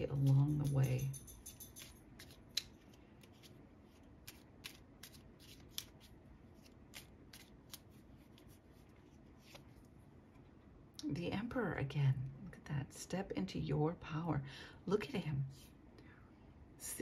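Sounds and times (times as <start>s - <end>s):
cards being shuffled: 1.8s - 9.9s.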